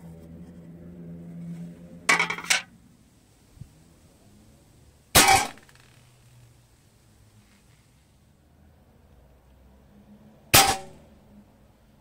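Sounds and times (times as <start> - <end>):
loud metallic clatters: 2.1 - 2.7, 10.6 - 11.0
rifle shot hitting metal plate: 5.2 - 5.8, 10.5 - 11.0.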